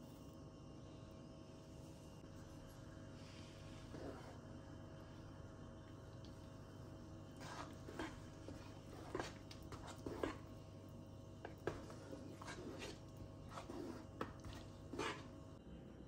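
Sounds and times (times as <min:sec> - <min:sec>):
faint steady hum: 0:00.0 - 0:16.0
spoon stirring thick soup: 0:03.4 - 0:04.7, 0:05.8 - 0:15.6
spoon scraping metal pot: 0:07.4 - 0:10.5, 0:11.4 - 0:15.4.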